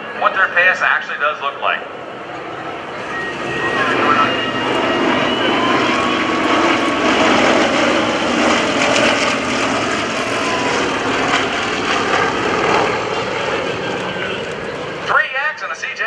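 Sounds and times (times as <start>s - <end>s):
propeller aircraft droning past: 0.0s - 16.0s.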